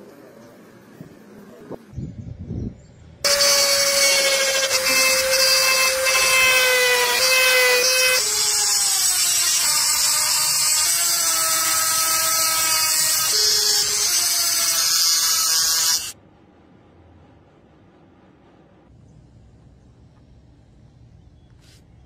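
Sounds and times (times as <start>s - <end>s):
rotary tool grinding metal: 3.3s - 16.2s.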